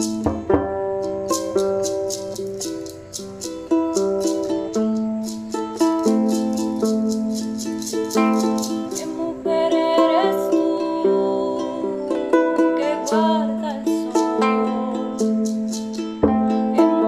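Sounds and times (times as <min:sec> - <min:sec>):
ukulele strumming: 0:00.0 - 0:17.0
person singing: 0:04.2 - 0:17.0.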